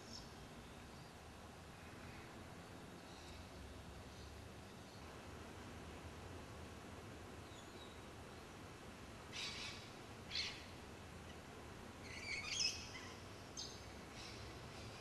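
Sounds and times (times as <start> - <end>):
faint background hiss: 0.0 - 15.0
birds calling: 9.3 - 15.0.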